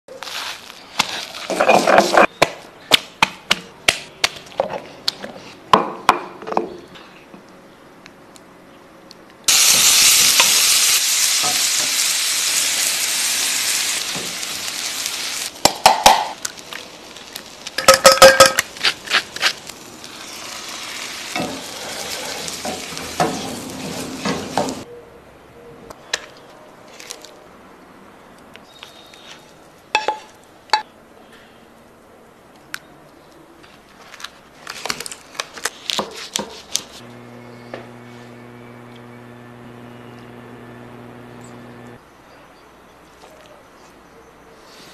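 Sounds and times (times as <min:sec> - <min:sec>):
food sizzling in a pan: 0:09.5 - 0:15.5, 0:19.6 - 0:24.8.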